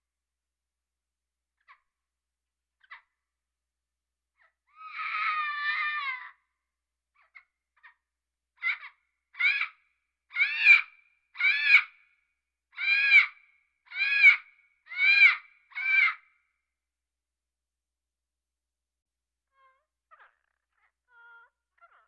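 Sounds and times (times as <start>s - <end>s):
parrot calling: 19.6s - 22.0s.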